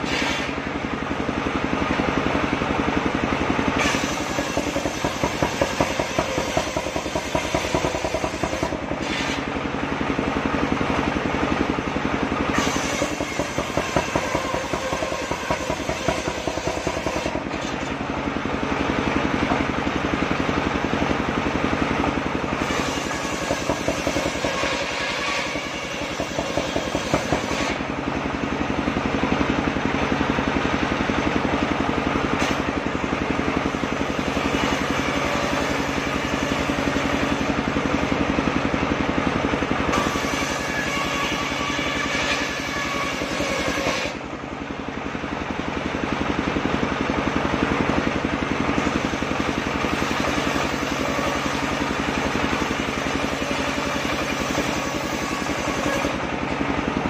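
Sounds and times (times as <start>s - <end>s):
circular saw cutting wood: 0.0s - 0.7s, 3.7s - 9.8s, 12.3s - 18.1s, 22.1s - 28.4s, 32.2s - 38.2s, 39.8s - 44.3s, 48.7s - 56.6s.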